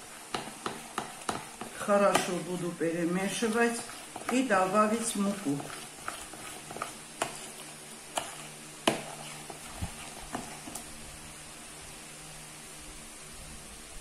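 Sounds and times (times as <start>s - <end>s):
metal spoon stirring in bowl: 0.3s - 10.8s.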